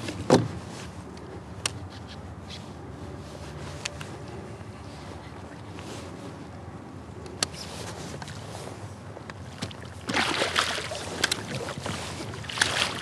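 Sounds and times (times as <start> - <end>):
water splashing and sloshing: 7.6 - 13.0.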